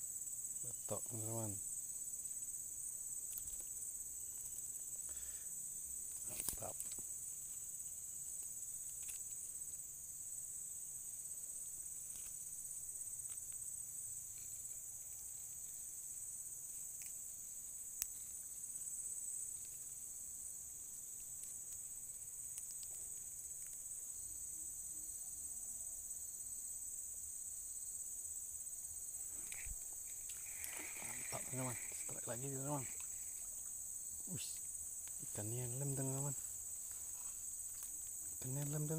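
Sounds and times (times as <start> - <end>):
insects singing: 0.0 - 38.9.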